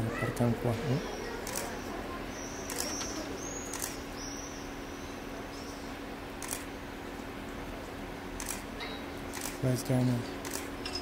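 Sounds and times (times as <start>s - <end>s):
steady low hum: 0.0s - 11.0s
small birds chirping: 0.9s - 6.0s
camera shutter clicks: 2.7s - 3.0s, 3.7s - 4.0s, 6.4s - 6.7s, 8.4s - 8.6s, 9.3s - 9.6s, 10.4s - 10.7s.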